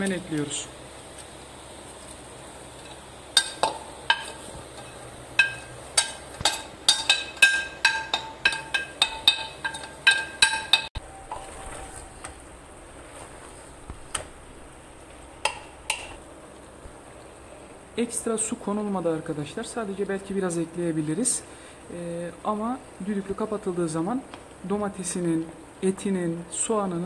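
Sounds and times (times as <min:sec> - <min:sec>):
steel spoon clinking: 0:02.8 - 0:11.4.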